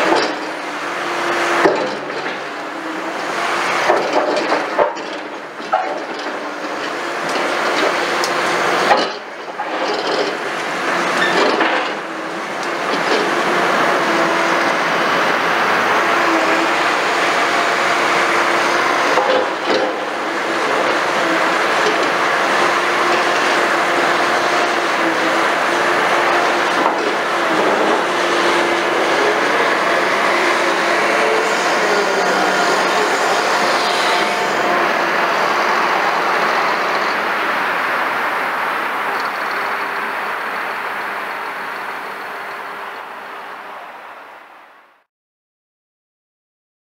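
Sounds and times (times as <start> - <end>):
excavator engine and hydraulics: 0.0 - 45.1
debris clattering and grinding: 1.6 - 16.2, 16.9 - 38.2.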